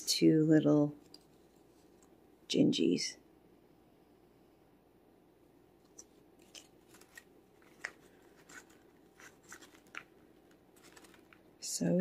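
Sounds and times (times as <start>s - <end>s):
paper clicks and rustles: 5.8s - 11.5s.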